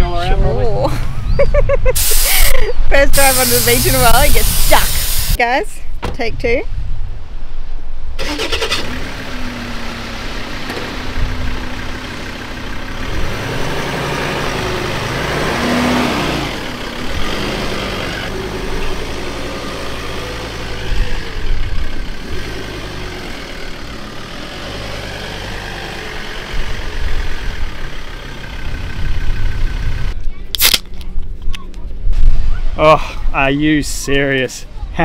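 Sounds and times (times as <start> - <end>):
vehicle engine working: 8.2 - 30.3.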